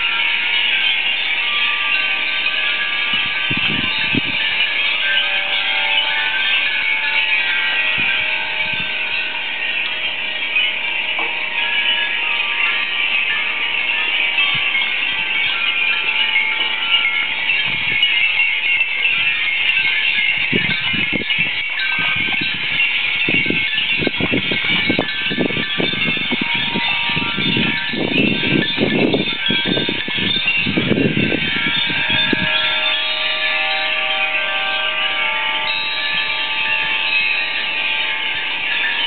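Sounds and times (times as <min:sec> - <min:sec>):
wind chimes tinkling: 0:00.0 - 0:39.0
wind gusts rumbling on microphone: 0:02.9 - 0:04.7, 0:07.6 - 0:09.4, 0:17.3 - 0:33.0.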